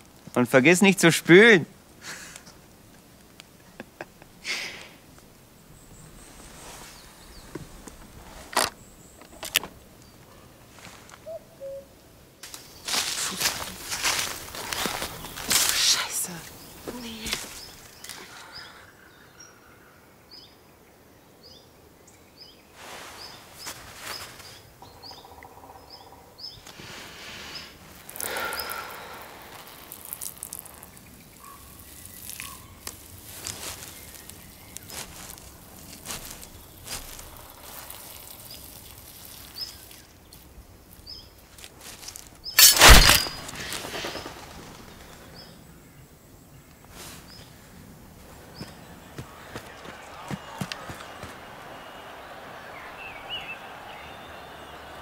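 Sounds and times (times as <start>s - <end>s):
bird chirping: 5.5s - 10.6s, 27.4s - 35.4s, 48.2s - 55.0s.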